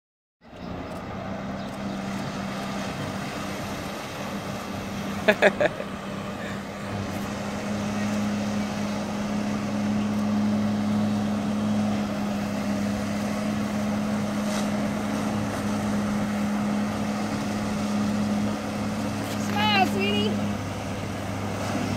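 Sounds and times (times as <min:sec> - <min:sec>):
watercraft engine droning: 0:00.4 - 0:21.9
water spray rushing: 0:00.9 - 0:21.9.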